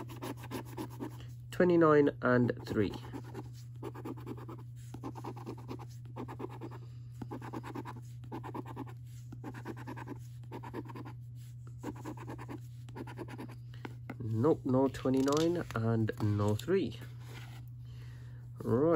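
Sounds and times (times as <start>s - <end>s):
coin scratching a scratchcard: 0.0s - 1.2s, 2.7s - 6.7s, 7.3s - 11.2s, 11.8s - 13.6s
low steady hum: 0.0s - 18.9s.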